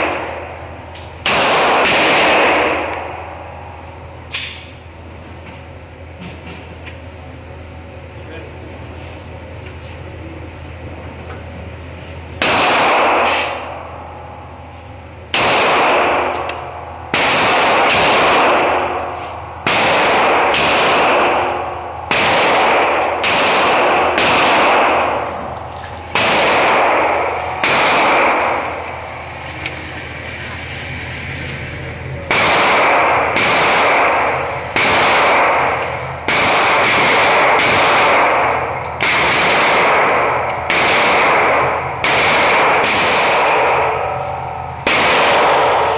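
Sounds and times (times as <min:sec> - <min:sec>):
steady low hum: 0:00.0 - 0:45.9
pistol shots echoing: 0:01.2 - 0:03.4, 0:12.4 - 0:13.8, 0:15.3 - 0:25.5, 0:26.1 - 0:29.1, 0:32.3 - 0:45.9.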